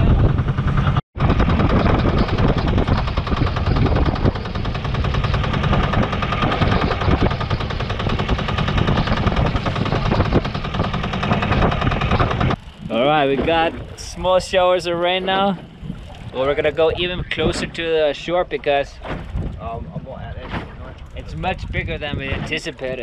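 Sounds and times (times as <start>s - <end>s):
boat engine running hard: 0.0s - 17.9s.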